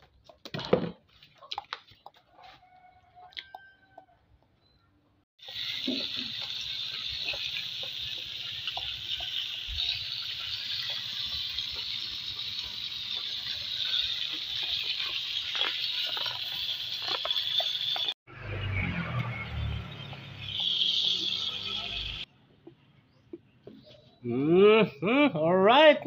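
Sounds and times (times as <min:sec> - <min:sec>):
fish sizzling in a wok: 0:05.4 - 0:22.3.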